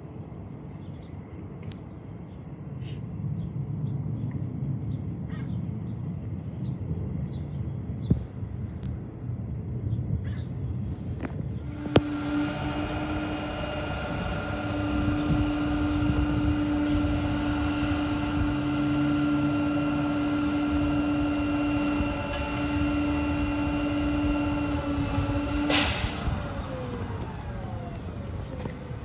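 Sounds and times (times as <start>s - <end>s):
garbage truck hydraulic whine: 11.5s - 29.0s
air hiss: 25.7s - 26.4s.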